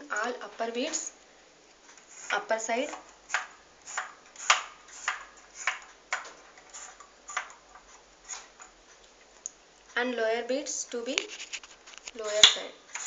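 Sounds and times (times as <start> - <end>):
abacus beads clicking: 1.9 - 8.5, 11.1 - 13.0.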